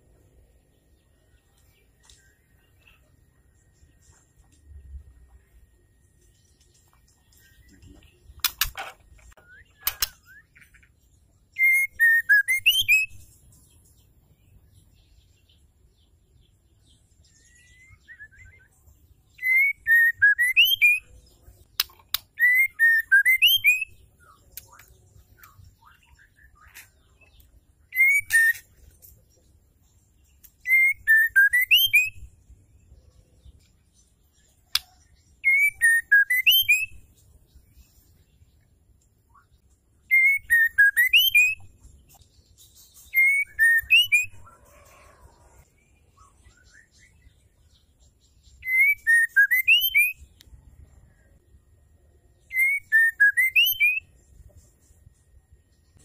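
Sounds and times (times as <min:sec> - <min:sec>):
sharp clicks: 0:08.4 - 0:10.2
bird whistled call: 0:11.6 - 0:13.2, 0:19.4 - 0:21.1, 0:22.4 - 0:24.0, 0:27.9 - 0:28.7, 0:40.1 - 0:41.7, 0:43.1 - 0:44.5, 0:48.6 - 0:50.2, 0:52.5 - 0:54.1.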